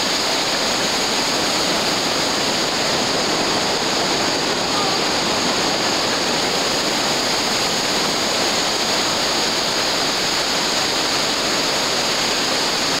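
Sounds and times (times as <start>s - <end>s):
water rushing over rocks: 0.0s - 13.0s.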